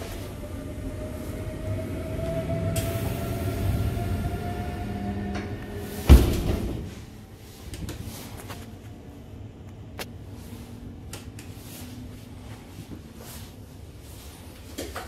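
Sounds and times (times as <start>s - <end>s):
faint train interior hum: 0.0s - 15.0s
heavy thump: 6.0s - 7.0s.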